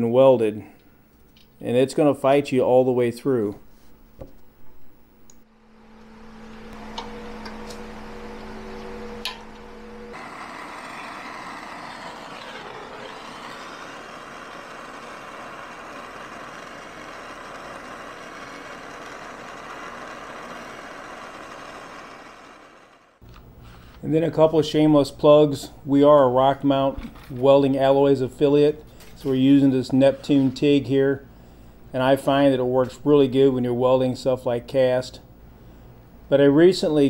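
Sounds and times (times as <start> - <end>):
low machine hum: 2.6 - 37.0
welding arc buzz and hiss: 4.6 - 24.0.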